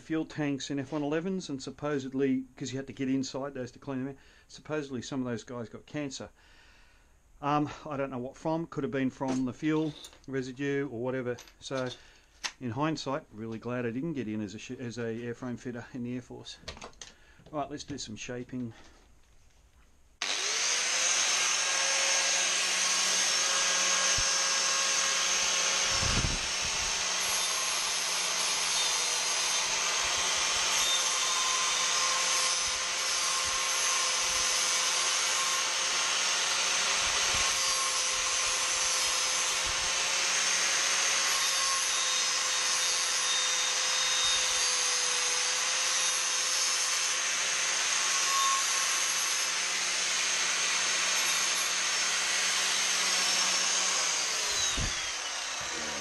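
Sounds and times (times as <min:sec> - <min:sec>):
angle grinder whining: 0:20.2 - 0:56.0.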